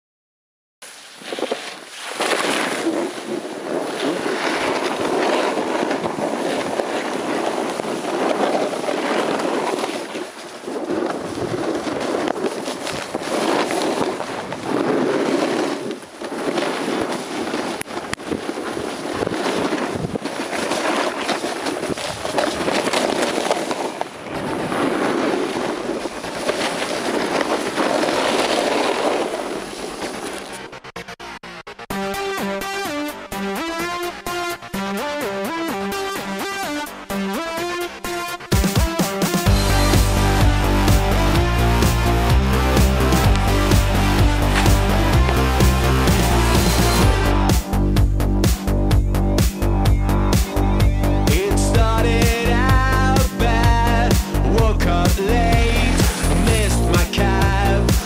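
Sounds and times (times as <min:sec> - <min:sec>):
snowboards scraping over snow: 0:00.8 - 0:31.0, 0:32.7 - 0:48.8, 0:49.4 - 0:58.0
wind buffeting microphone: 0:02.6 - 0:30.0.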